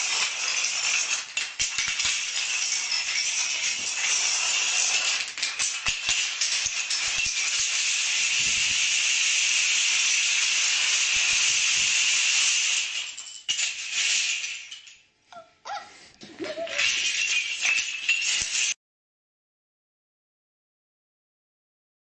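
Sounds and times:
wooden planks clattering: 0.0s - 8.9s, 16.1s - 18.8s
person laughing: 15.7s - 17.0s.

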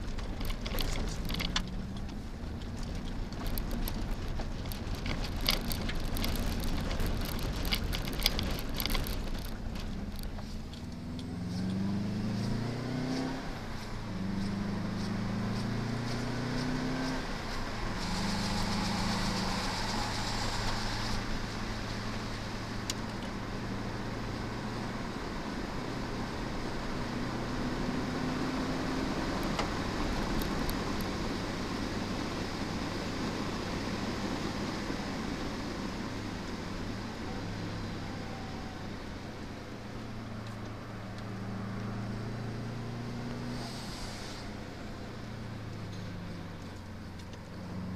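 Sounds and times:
car engine accelerating: 0.0s - 47.9s
gravel crunching under tyres: 0.0s - 47.9s.

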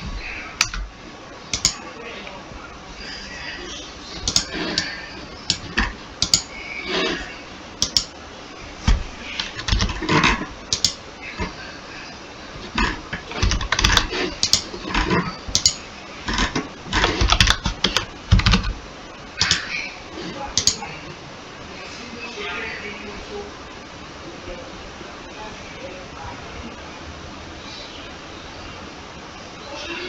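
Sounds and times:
computer keyboard typing: 1.5s - 1.8s, 4.2s - 6.5s, 7.8s - 8.2s, 9.4s - 11.0s, 12.8s - 18.8s, 19.4s - 19.6s.

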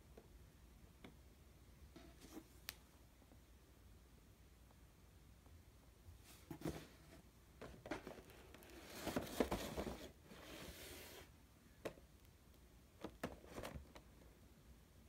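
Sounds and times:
cardboard box rustling and sliding: 6.3s - 11.3s.

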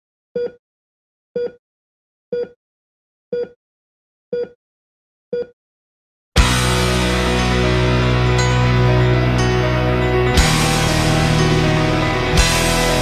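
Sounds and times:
heart monitor beeps: 0.4s - 0.6s, 1.4s - 1.6s, 2.4s - 2.6s, 3.4s - 3.6s, 4.4s - 4.6s, 5.4s - 5.6s
loud music: 6.4s - 13.0s.

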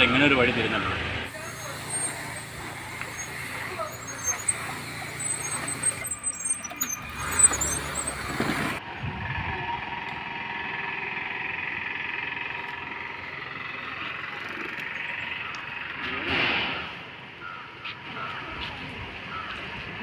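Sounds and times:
road traffic noise: 0.0s - 20.0s
steady vehicle hum: 0.0s - 20.0s
high chirps: 1.3s - 8.8s.

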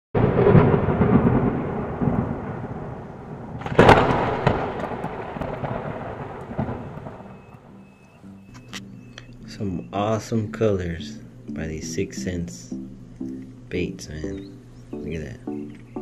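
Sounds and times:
sharp thunderclap: 0.2s - 7.7s
thunder rumbling: 0.2s - 8.2s.

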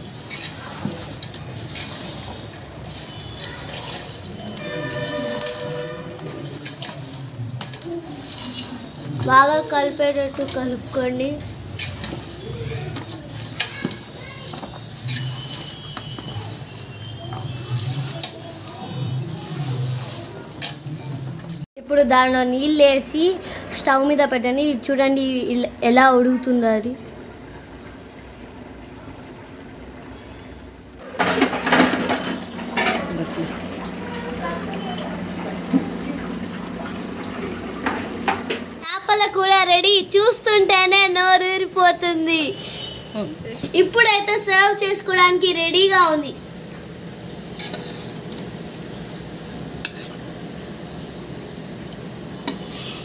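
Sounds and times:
spoon scraping metal pot: 0.2s - 7.2s, 47.5s - 48.4s, 49.8s - 50.3s, 52.5s - 53.0s.

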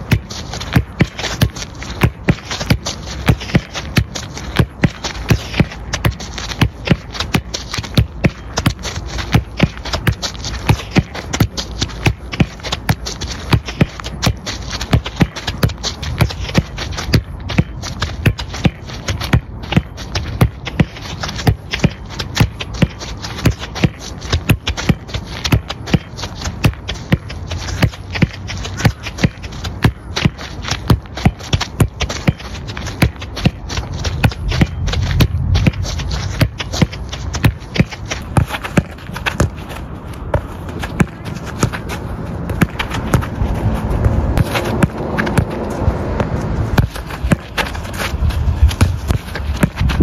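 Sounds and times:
footsteps on artificial turf: 0.0s - 50.0s
wind rumble on microphone: 32.6s - 50.0s.

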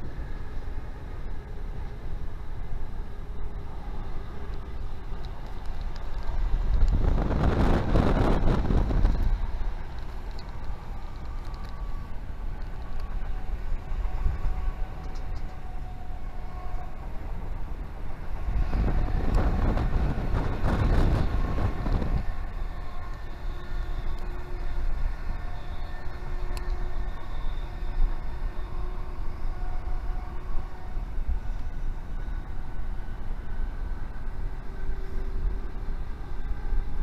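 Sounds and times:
train wheels rumbling on rails: 0.0s - 37.0s
rushing noise: 6.0s - 14.5s.

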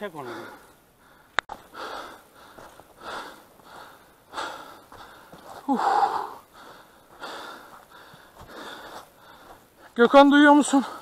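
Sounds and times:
person breathing hard: 0.2s - 9.8s.

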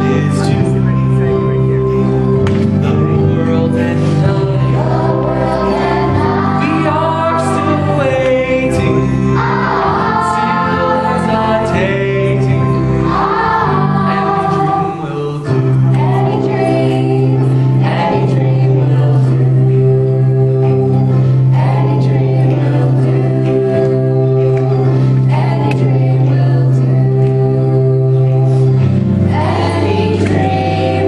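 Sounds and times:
lead singer singing: 0.0s - 21.0s
children's choir singing: 0.0s - 31.0s
instrumental accompaniment: 0.0s - 31.0s.

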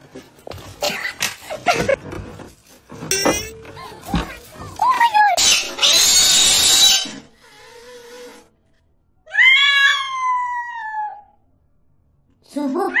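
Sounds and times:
cat yowling: 9.3s - 11.4s.

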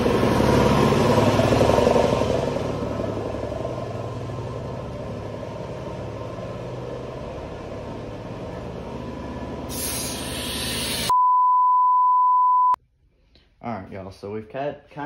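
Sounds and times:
compressed air hiss: 9.7s - 11.1s
high-pitched beep tone: 11.1s - 12.8s.

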